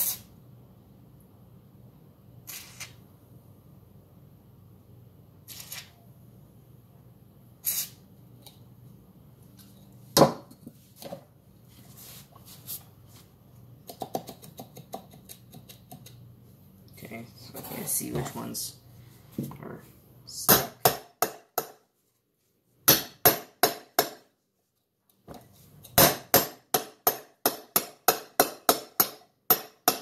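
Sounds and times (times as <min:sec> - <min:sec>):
aerosol can hissing: 0:07.6 - 0:08.0.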